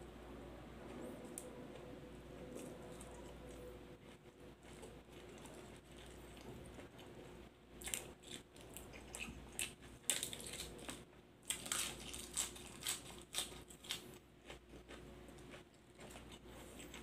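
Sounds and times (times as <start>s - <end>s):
crunchy chewing: 1.2s - 17.0s
cabbage leaves tearing: 9.6s - 14.0s.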